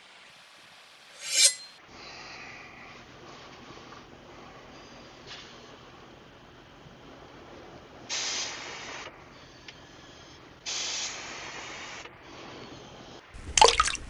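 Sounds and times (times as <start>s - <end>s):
hissing bursts: 8.1s - 9.1s, 10.6s - 12.5s.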